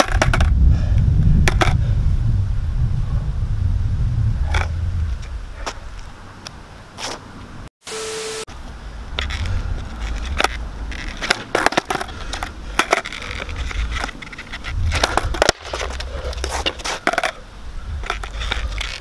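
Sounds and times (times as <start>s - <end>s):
skateboard clacking on asphalt: 0.0s - 0.6s, 1.4s - 1.8s, 9.1s - 19.0s.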